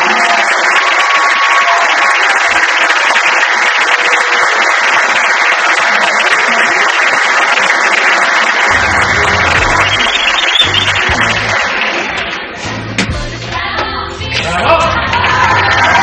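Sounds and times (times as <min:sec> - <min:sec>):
audience applauding: 0:00.0 - 0:12.6, 0:14.9 - 0:16.0
low music: 0:08.7 - 0:11.7.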